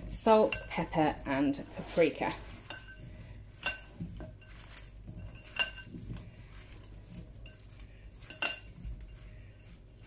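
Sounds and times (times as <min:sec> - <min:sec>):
wet potato shuffling in bowl: 0:00.0 - 0:10.0.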